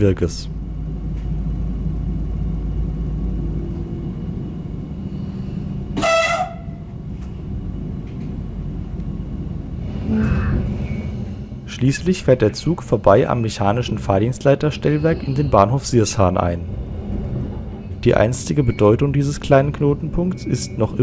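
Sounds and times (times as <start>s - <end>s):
train cabin low rumble: 0.0s - 21.0s
train horn toot: 6.0s - 6.9s.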